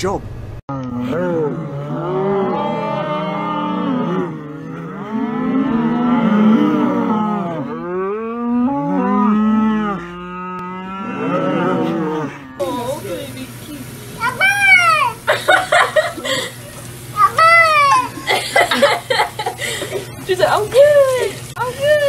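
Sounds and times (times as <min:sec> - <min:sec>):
cattle mooing: 0:00.7 - 0:12.8.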